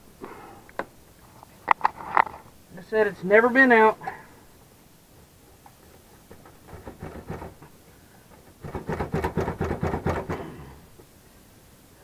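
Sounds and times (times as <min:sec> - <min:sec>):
sheet metal rattling and scraping: 0:05.1 - 0:10.4.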